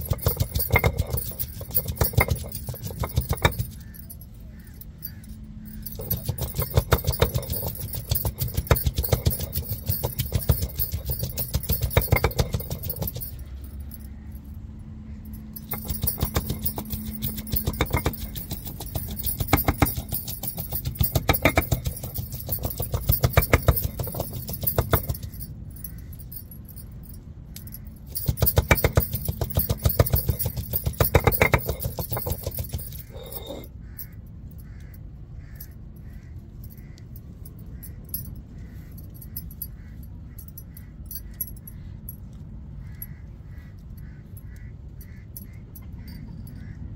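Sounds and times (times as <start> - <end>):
stone roller grinding on slab: 0.0 - 3.8, 15.6 - 25.2, 28.1 - 33.7
glass bangles jangling: 0.0 - 35.0, 35.6 - 43.2, 43.8 - 46.9.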